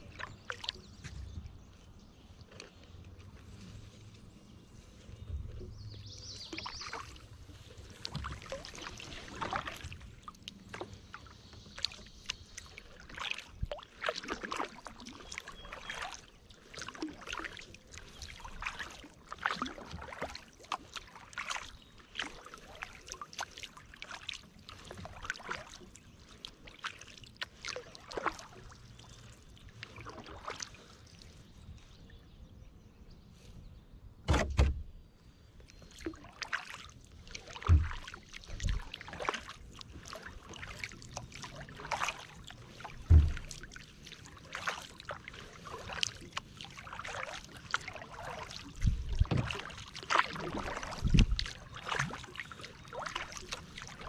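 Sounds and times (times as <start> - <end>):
kayak paddle splashing: 0.0 - 32.2, 35.7 - 54.0
loud thump: 34.3 - 34.8.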